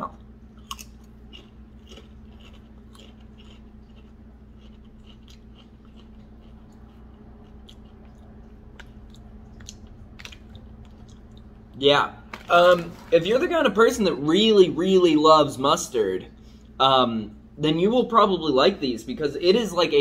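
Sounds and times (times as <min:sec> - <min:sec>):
tortilla chip crunching: 0:00.2 - 0:13.9.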